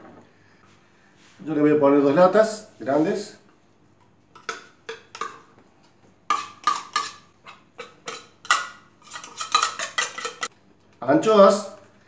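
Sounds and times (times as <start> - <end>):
metal spoon scraping tin can: 7.8 - 10.5.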